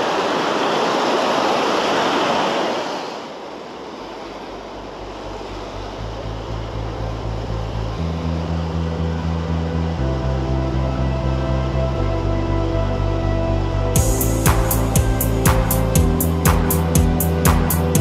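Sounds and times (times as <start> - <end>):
small waves washing on shore: 0.0 - 6.1
music with pulsing bass line: 5.8 - 18.0.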